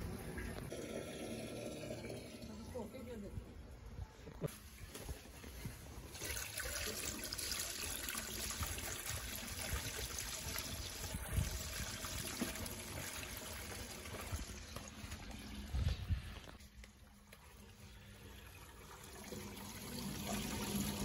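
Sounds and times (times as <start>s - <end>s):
liquid pouring through funnel: 0.7s - 2.8s, 6.0s - 15.7s.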